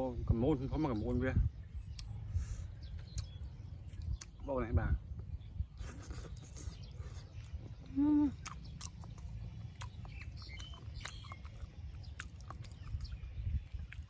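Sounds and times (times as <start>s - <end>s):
man chewing with lip smacks: 1.8s - 2.2s, 2.8s - 4.4s, 5.8s - 14.0s
mouth clicks: 1.9s - 2.2s, 3.1s - 3.4s, 6.3s - 14.0s.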